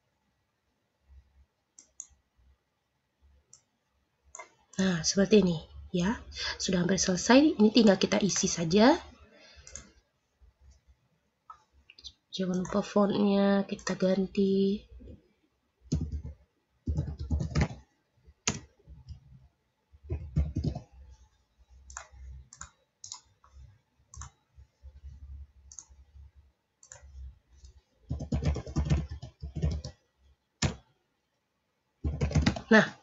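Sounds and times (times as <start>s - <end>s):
computer keyboard typing: 1.8s - 2.2s, 9.6s - 10.0s, 12.5s - 13.0s, 13.8s - 14.1s, 15.8s - 19.3s, 20.0s - 21.2s, 21.8s - 26.2s, 26.8s - 30.9s, 32.0s - 32.8s.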